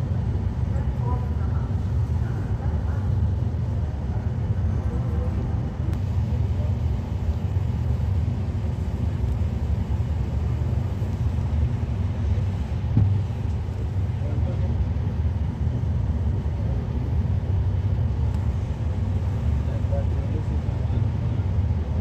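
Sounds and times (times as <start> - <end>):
train coach low rumble: 0.0 - 22.0.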